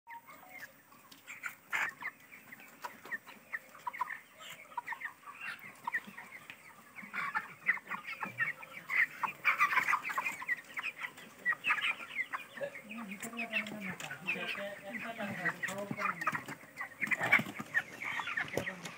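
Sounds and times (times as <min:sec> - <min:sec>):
chickens peeping and clucking: 0:00.1 - 0:18.9.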